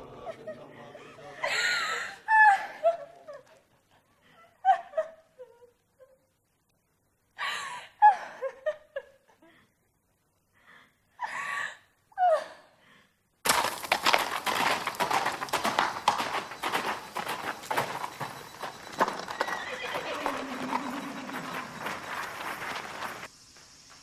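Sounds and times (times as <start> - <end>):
person sobbing and wailing: 0.2 - 3.4
horse hooves on gravel: 13.4 - 24.0.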